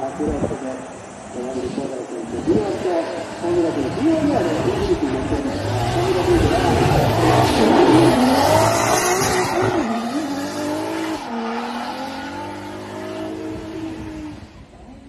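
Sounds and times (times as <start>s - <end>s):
car engine revving: 2.2s - 15.0s
tyres squealing: 4.0s - 13.5s.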